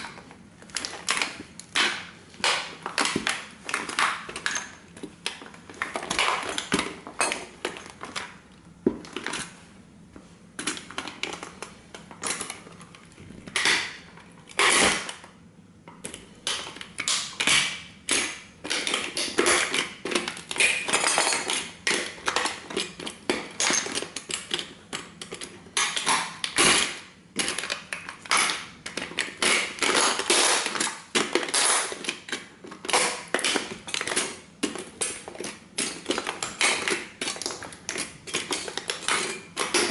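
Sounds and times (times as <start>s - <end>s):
tin toy car crumpling: 29.3s - 34.2s.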